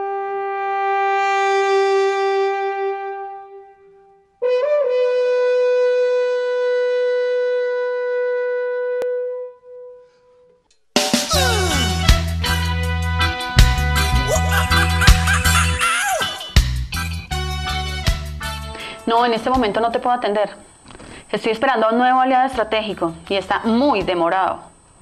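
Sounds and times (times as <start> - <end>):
horn-like wind instrument notes: 0.0 - 10.1, 11.3 - 16.5
music: 0.0 - 19.8.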